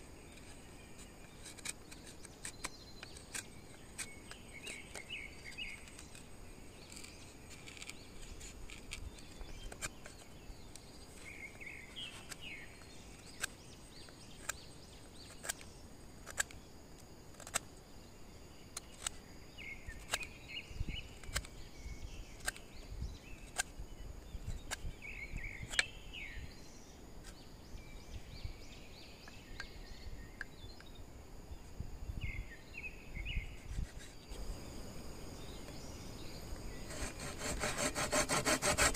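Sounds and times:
insects chirring: 0.0 - 38.9.

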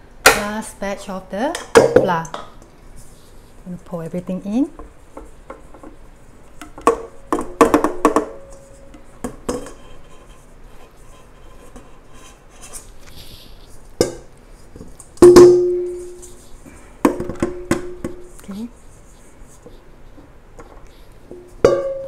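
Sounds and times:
bowl knock and ringing: 15.2 - 16.2, 21.6 - 22.0.

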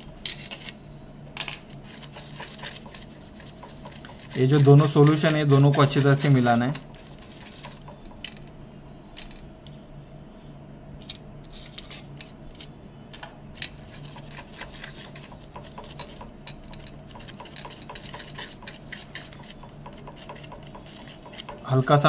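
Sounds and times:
steady low hum: 0.0 - 22.0
tool scraping and tapping: 1.8 - 8.4, 13.2 - 22.0.

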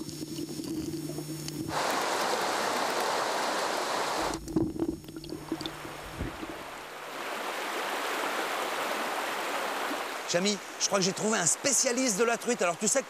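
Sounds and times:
stream rushing over stones: 1.7 - 4.4, 5.4 - 13.0
dull low thumps: 4.3 - 6.8.

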